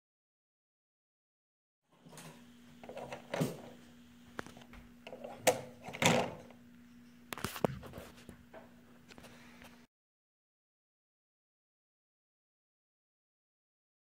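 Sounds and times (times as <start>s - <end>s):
faint steady hum: 1.9s - 9.9s.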